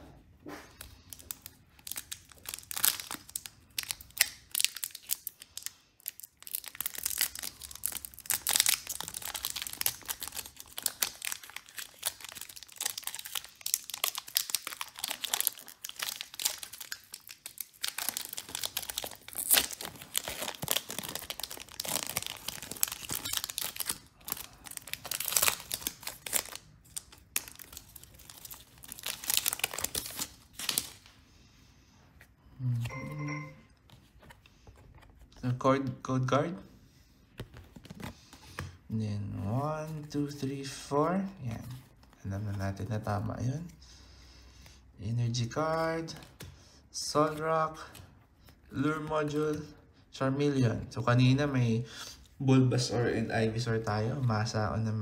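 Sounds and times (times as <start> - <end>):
foil wrapper crinkling and tearing: 0.8 - 31.1.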